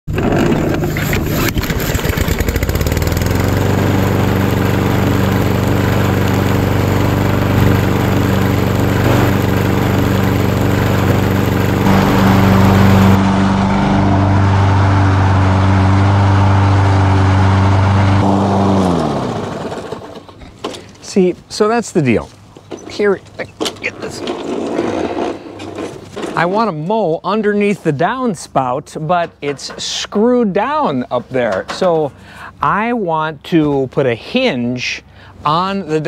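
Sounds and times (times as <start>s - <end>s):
lawn mower engine running: 0.1s - 21.0s.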